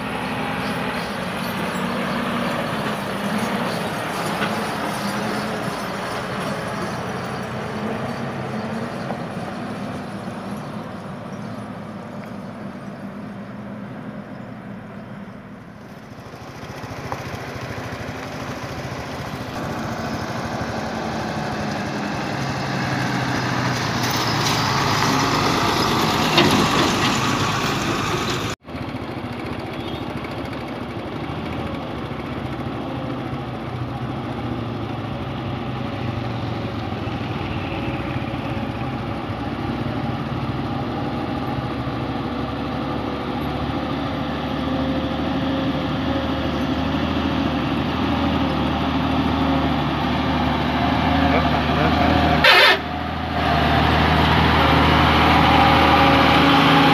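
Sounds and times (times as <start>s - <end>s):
diesel truck engines driving past: 0.0s - 56.9s.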